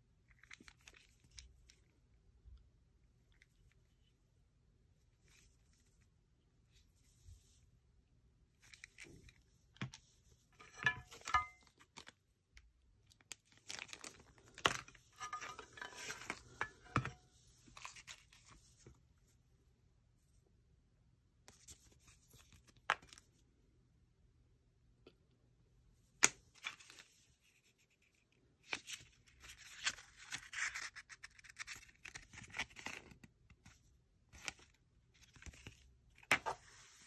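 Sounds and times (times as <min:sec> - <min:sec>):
paper rustling: 0:26.6 - 0:37.0.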